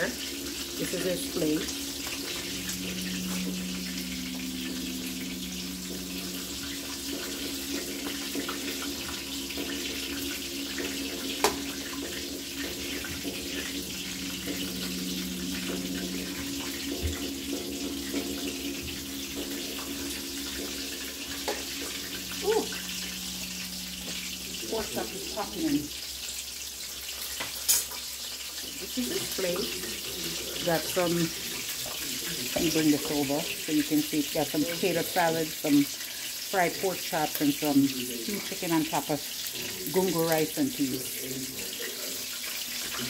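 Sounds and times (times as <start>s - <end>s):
low steady hum: 0.0s - 26.7s.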